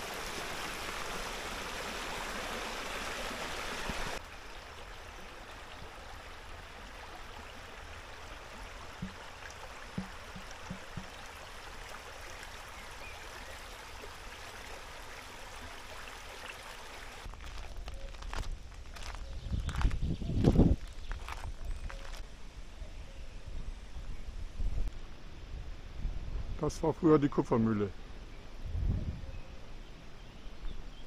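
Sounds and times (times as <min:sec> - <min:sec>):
stream running over stones: 0:00.0 - 0:22.3
faint low knocks: 0:09.9 - 0:11.2.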